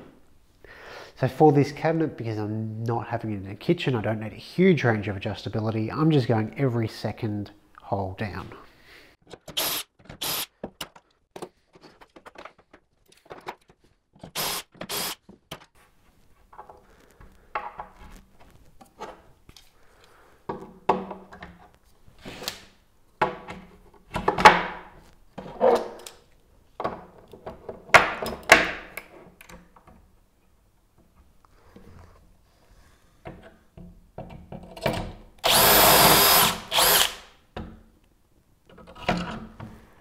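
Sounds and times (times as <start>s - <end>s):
cordless drill bursts: 9.5s - 10.5s, 14.4s - 15.2s, 35.4s - 37.3s.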